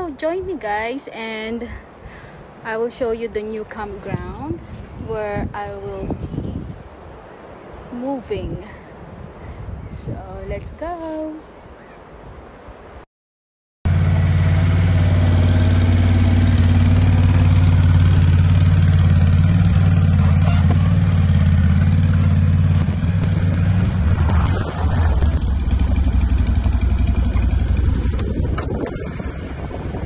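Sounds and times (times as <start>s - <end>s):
atv engine running: 13.9s - 30.0s.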